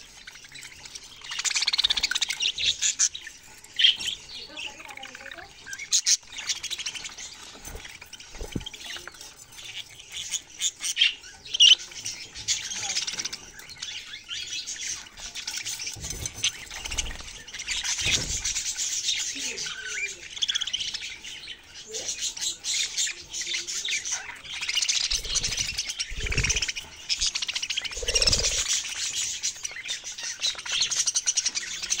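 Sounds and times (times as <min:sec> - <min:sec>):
wings fluttering: 0:00.0 - 0:10.8, 0:14.6 - 0:19.8, 0:24.1 - 0:32.0
budgerigars chirping and squawking: 0:00.0 - 0:32.0
parrots chattering: 0:00.0 - 0:32.0.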